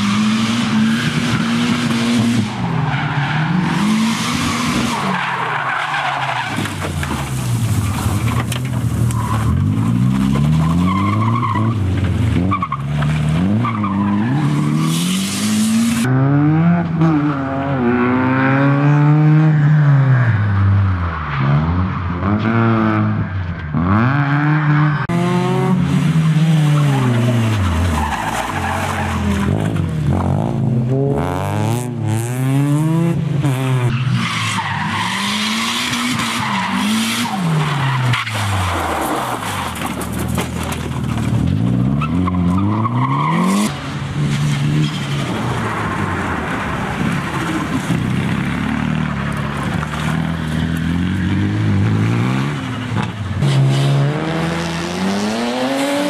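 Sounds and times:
car engine revving: 46.3s - 56.0s.

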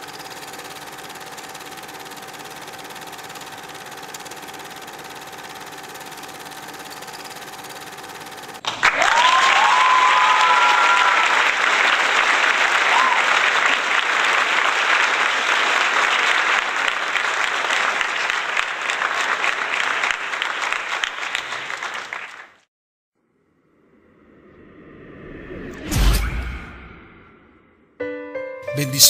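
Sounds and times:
crowd cheering: 8.6s - 22.6s
crowd applauding: 8.6s - 22.7s.

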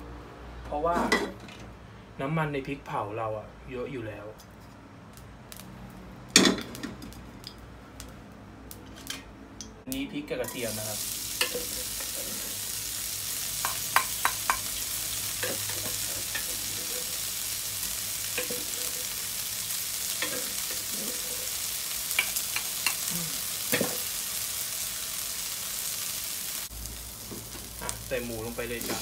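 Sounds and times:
sharp crackles: 5.5s - 6.0s
chillies and garlic sizzling in oil: 10.4s - 29.0s.

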